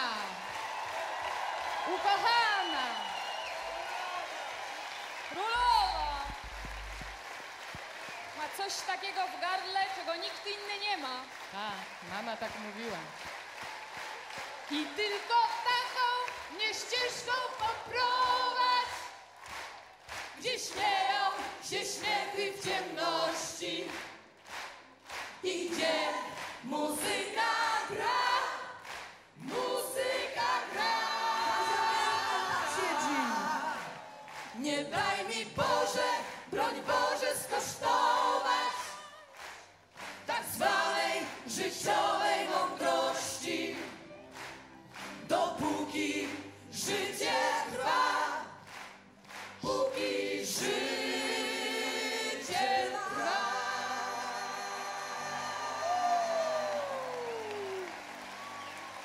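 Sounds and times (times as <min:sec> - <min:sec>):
group singing in chorus: 0:14.8 - 0:44.0, 0:45.1 - 0:57.0.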